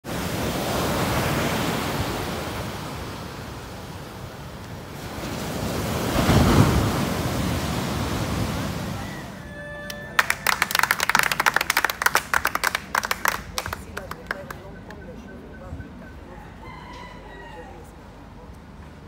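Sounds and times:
waves crashing on beach: 0.0 - 15.0.

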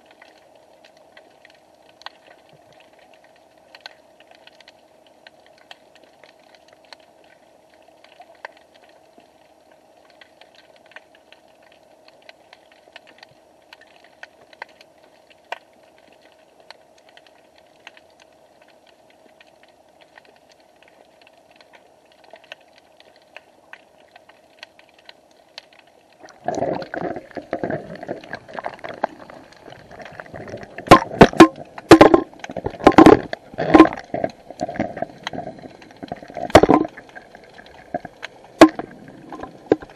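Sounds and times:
faint steady underwater hum: 0.0 - 39.9
small crackling clicks: 0.0 - 39.9
rushing water: 26.2 - 39.9.

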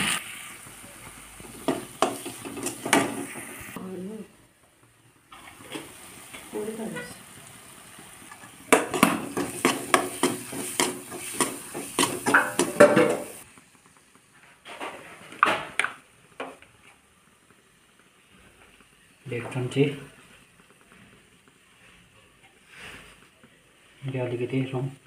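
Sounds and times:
metal utensils scraping a wok: 1.5 - 3.7, 8.3 - 13.4.

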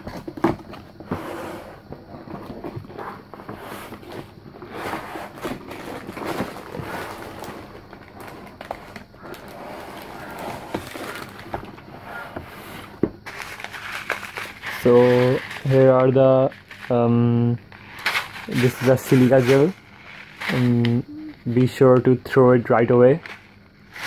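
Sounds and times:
cardboard flaps scraping: 0.0 - 16.9
packaging rustling: 3.9 - 11.9, 12.8 - 17.0.

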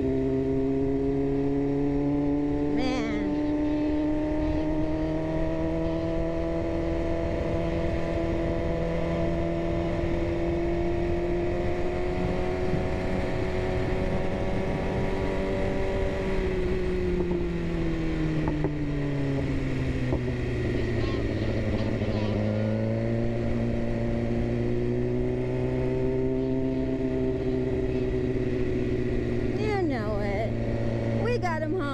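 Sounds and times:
motorcycle engine at steady revs: 0.0 - 31.9
wind noise on microphone: 7.1 - 22.3.

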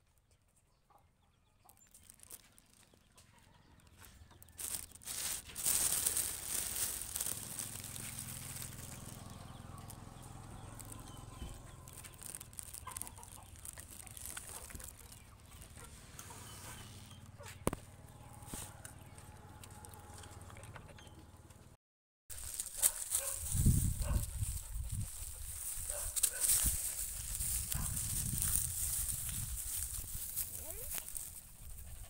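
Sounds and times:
chickens clucking: 7.1 - 19.3.

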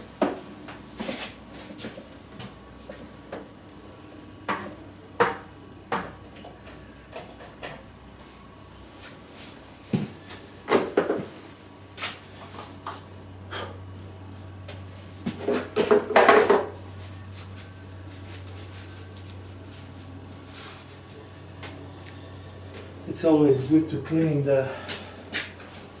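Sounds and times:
low hum: 16.6 - 26.0.

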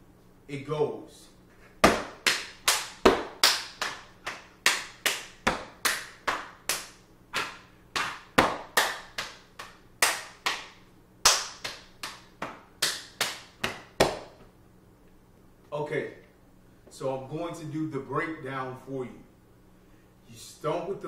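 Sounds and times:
hand slaps on body: 1.8 - 14.4
hand claps: 1.8 - 14.5.

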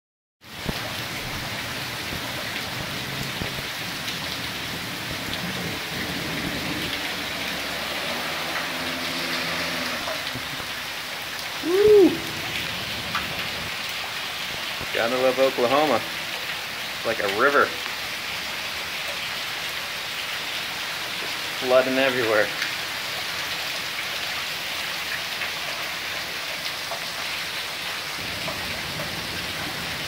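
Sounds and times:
heavy rain splashing: 0.4 - 30.0
water pouring off roof edge: 0.4 - 30.0
hoot-like sound: 11.6 - 12.4.

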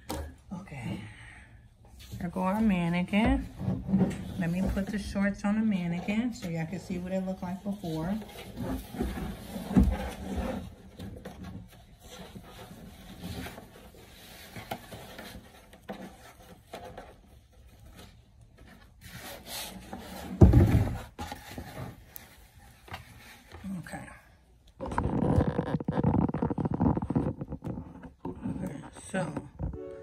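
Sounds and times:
fabric rubbing on plastic: 2.2 - 11.0, 24.8 - 29.7.

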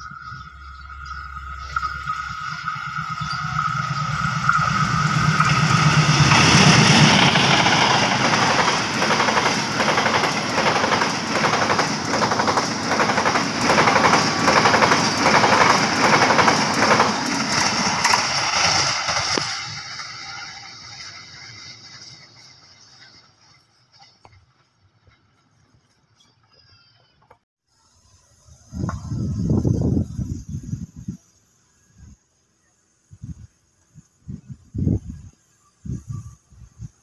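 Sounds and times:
diesel locomotive engine hum: 0.0 - 27.4
train wheels clattering on rails: 1.7 - 26.1.

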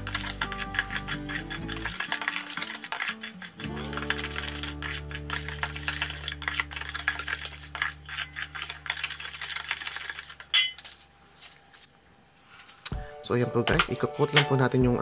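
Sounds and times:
background music: 0.0 - 8.3, 12.9 - 15.0
metal spoon scraping bowl: 0.0 - 9.6.

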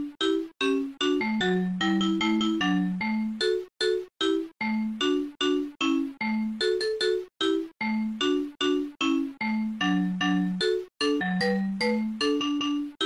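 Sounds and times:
xylophone-like tune: 0.0 - 13.0.

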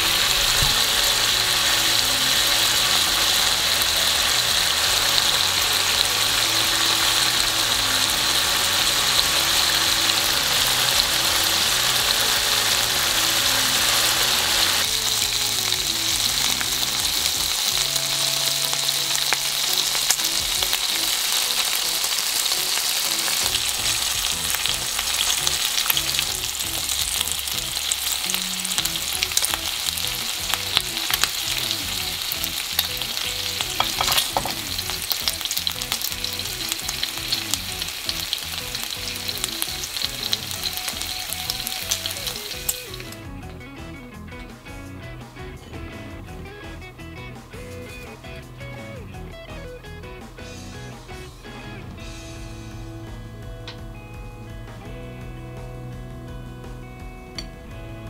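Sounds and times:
meat sizzling in a frying pan: 0.0 - 43.3
chopsticks clicking on pan: 33.8 - 34.6.

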